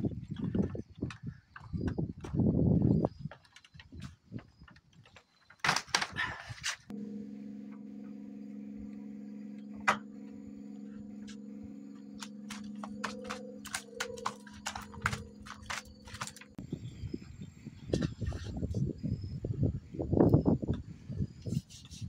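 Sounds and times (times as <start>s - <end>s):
fish flapping on wooden boards: 3.2s - 6.9s, 12.2s - 16.6s
hum of low held tones: 6.9s - 21.4s.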